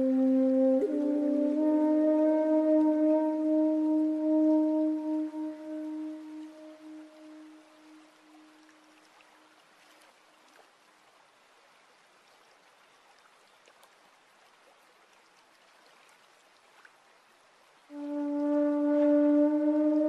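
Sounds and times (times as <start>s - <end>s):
held musical tone: 0.0s - 8.4s
stream trickling over stones: 0.0s - 19.9s
water drips: 0.0s - 20.0s.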